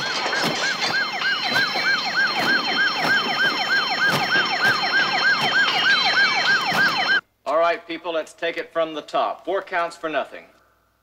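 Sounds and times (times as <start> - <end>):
alarm siren yelping: 0.0 - 7.2.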